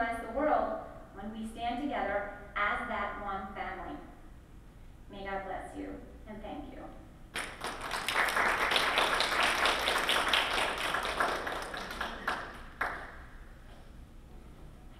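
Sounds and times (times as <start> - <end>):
audience applauding: 7.4 - 13.3.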